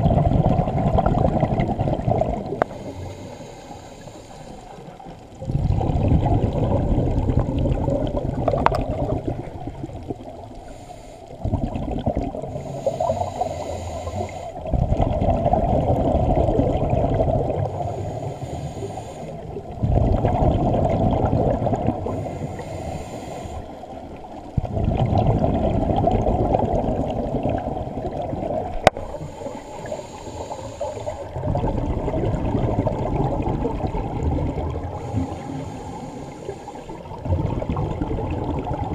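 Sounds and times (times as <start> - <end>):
underwater breath bubbles gurgling: 0.0 - 38.9.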